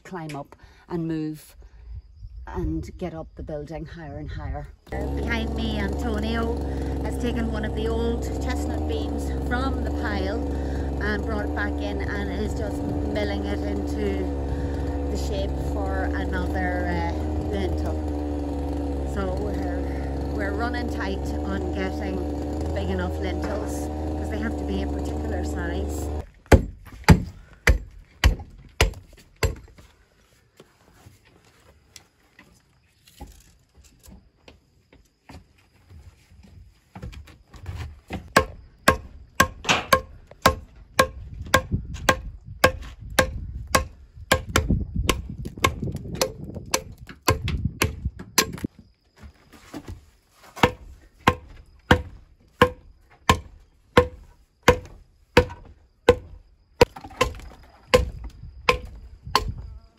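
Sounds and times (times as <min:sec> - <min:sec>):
axe chopping wooden beam: 0:25.8 - 0:29.8, 0:37.7 - 0:48.7, 0:50.6 - 0:59.7.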